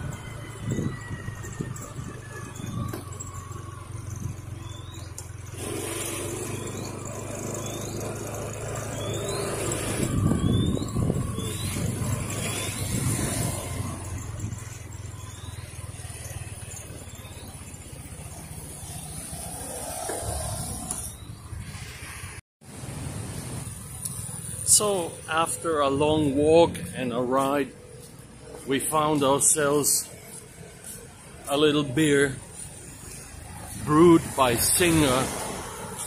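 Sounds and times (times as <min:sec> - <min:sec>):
wind rush on microphone: 0:00.0 - 0:03.0, 0:09.7 - 0:14.6
scooter engine humming: 0:00.0 - 0:36.0
faint high chirp: 0:00.2 - 0:05.4, 0:08.8 - 0:19.0.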